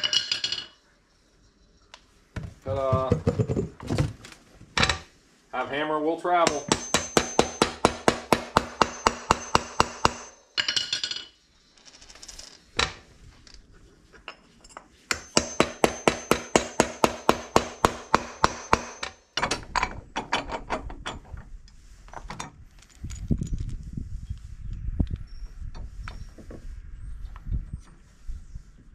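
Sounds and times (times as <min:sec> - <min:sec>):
hammer striking metal hub: 0:06.4 - 0:11.3, 0:15.1 - 0:19.6.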